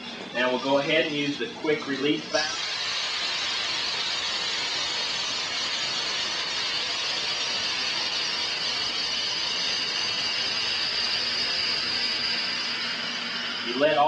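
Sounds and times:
air hissing from tire: 0:02.4 - 0:14.0
thin high whistle: 0:05.3 - 0:14.0.

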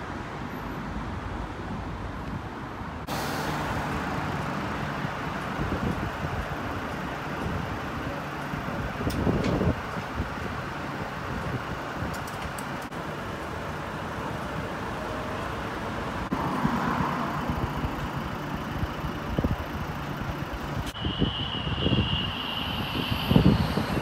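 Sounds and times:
truck diesel engine rumbling: 0:03.0 - 0:24.0
wind buffeting microphone: 0:05.0 - 0:12.8, 0:16.4 - 0:24.0
steady high tone: 0:20.6 - 0:24.0.

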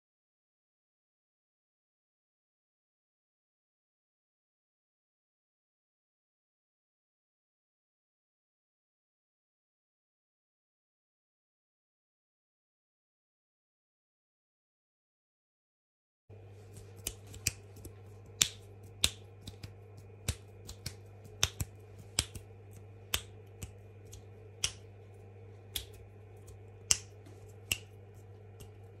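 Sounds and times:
faint steady hum: 0:16.3 - 0:29.0
sharp snapping clicks: 0:16.7 - 0:24.9, 0:25.7 - 0:28.9.

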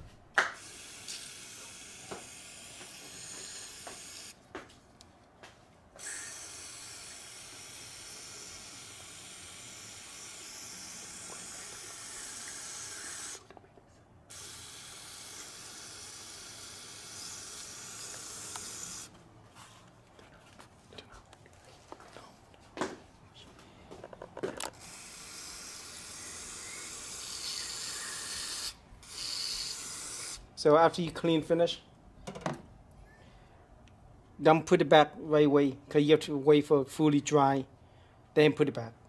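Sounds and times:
aerosol spray hissing: 0:00.6 - 0:04.4, 0:06.0 - 0:13.4, 0:14.3 - 0:19.1, 0:24.8 - 0:30.4.

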